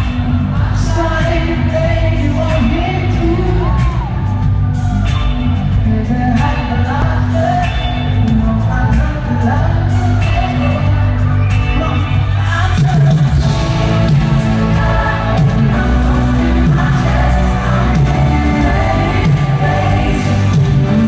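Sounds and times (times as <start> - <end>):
band with heavy bass: 0.0 - 21.0
male singer: 0.0 - 21.0.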